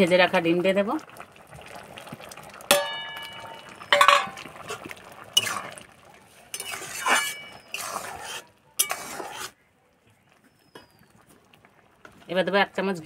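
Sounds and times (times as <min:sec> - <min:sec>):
dal simmering: 0:00.0 - 0:13.0
steel plate clanking on metal pan: 0:02.7 - 0:04.5, 0:06.5 - 0:07.7, 0:08.8 - 0:09.1
spatula scraping and stirring: 0:03.4 - 0:09.6.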